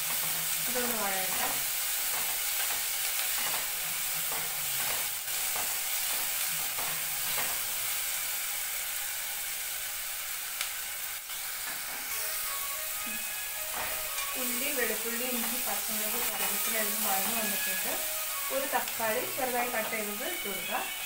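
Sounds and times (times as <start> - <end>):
vegetables sizzling in oil: 0.0 - 21.0.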